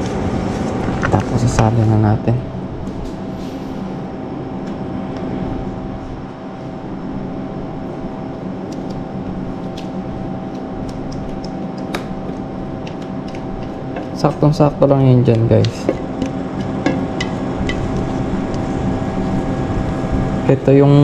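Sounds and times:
kitchen machinery humming: 0.0s - 21.0s
spatula clicking on steel bowl: 12.8s - 14.5s.

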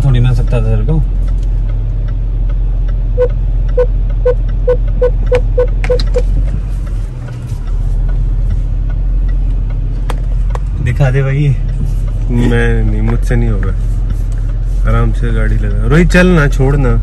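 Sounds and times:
low engine and cabin hum: 0.0s - 17.0s
parking sensor beeping: 3.2s - 6.3s.

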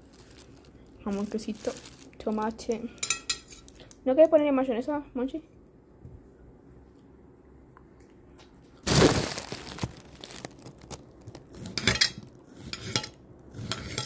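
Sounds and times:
dishes clattering: 11.7s - 12.2s.

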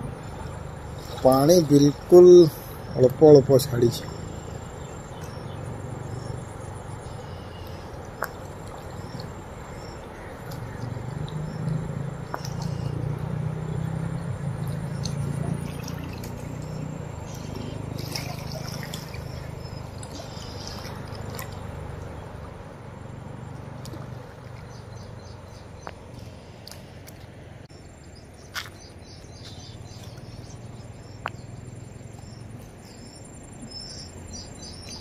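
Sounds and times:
river rushing: 0.0s - 27.6s.

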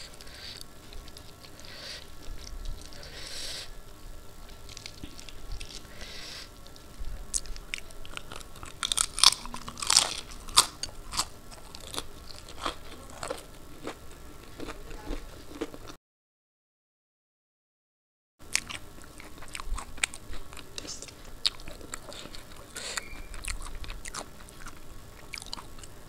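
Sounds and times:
crisp crunching while chewing: 0.0s - 3.1s, 4.4s - 16.0s, 18.4s - 26.0s.

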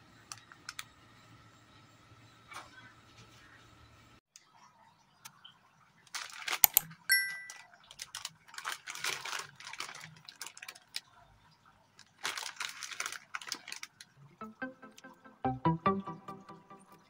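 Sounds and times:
plastic packet crinkling: 6.1s - 6.8s, 7.6s - 11.2s, 12.0s - 14.2s
background music with piano notes: 14.4s - 17.0s.

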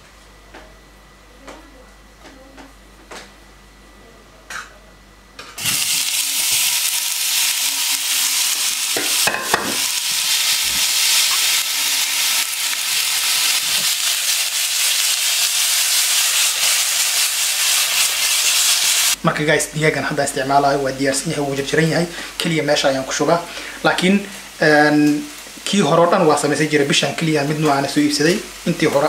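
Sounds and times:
meat sizzling in a pan: 5.6s - 19.2s
knocks on a pan: 9.0s - 9.8s.

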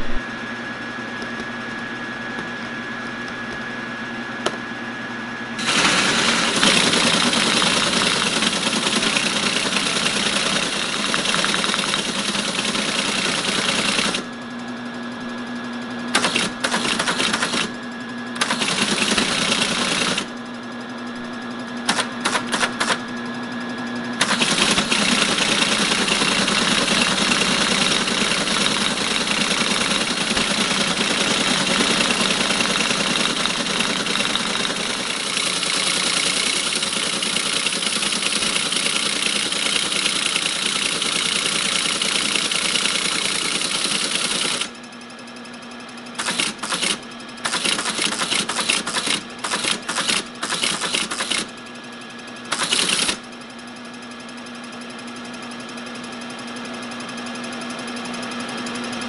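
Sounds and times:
steady machine hum: 0.0s - 59.0s
teletype keystrikes: 5.6s - 14.2s, 16.2s - 17.7s, 18.4s - 20.3s, 21.9s - 23.0s, 24.2s - 44.7s, 46.2s - 51.5s, 52.5s - 53.2s
teletype printing: 5.6s - 14.3s, 16.2s - 17.8s, 18.4s - 20.3s, 21.9s - 23.0s, 24.2s - 44.7s, 46.2s - 51.5s, 52.5s - 53.2s.

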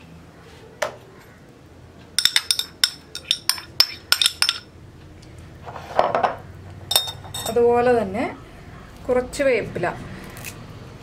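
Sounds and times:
metal spoon clinking on ceramic dish: 2.2s - 4.7s, 6.9s - 7.6s.

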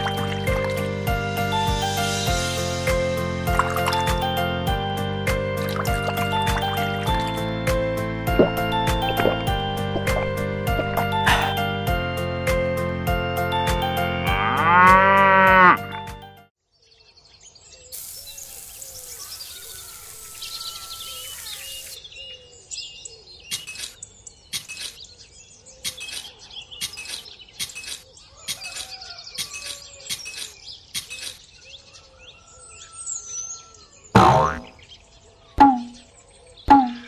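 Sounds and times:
birds chirping and singing: 16.7s - 37.0s.

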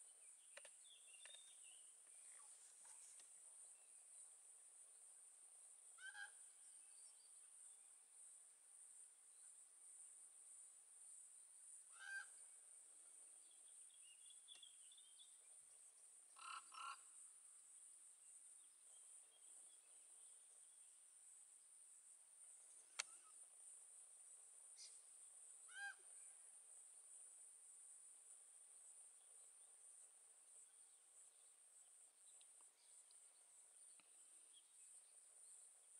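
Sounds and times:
crickets chirring: 0.0s - 35.9s
bird calls: 0.4s - 3.1s
sharp click: 22.9s - 23.2s.

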